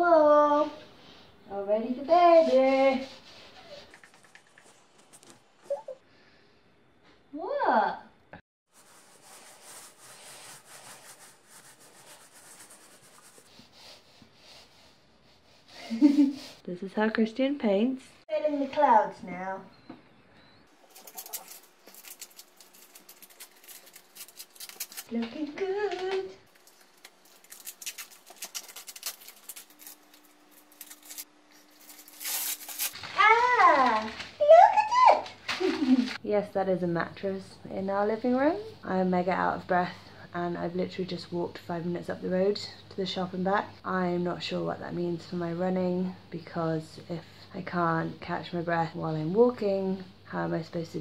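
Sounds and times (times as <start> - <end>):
stencil rustle: 8.7 - 16.4, 20.7 - 36.2
paintbrush brushing on a wall: 8.7 - 16.6.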